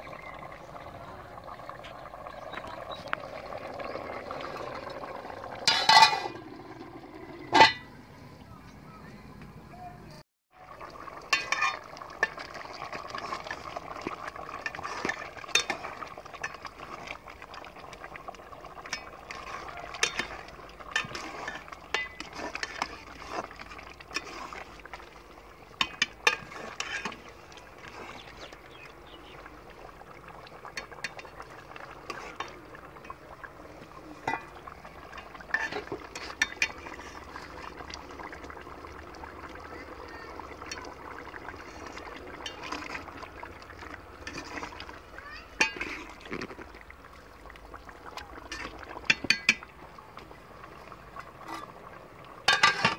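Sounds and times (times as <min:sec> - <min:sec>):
pot bubbling: 0:00.0 - 0:08.6, 0:10.5 - 0:52.9
metal ladle scraping a pot: 0:05.6 - 0:06.4, 0:07.4 - 0:07.9, 0:11.3 - 0:12.4, 0:14.6 - 0:17.2, 0:18.8 - 0:24.8, 0:25.8 - 0:28.6, 0:30.7 - 0:33.2, 0:34.1 - 0:37.6, 0:44.2 - 0:44.9, 0:45.6 - 0:46.6, 0:51.3 - 0:51.8, 0:52.5 - 0:52.9.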